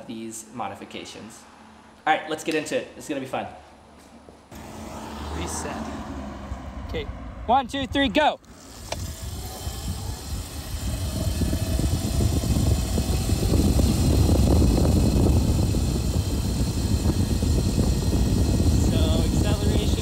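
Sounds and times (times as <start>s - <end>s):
electric motor whine: 4.5s - 6.2s, 8.4s - 20.0s
wind rumbling on microphone: 8.8s - 20.0s.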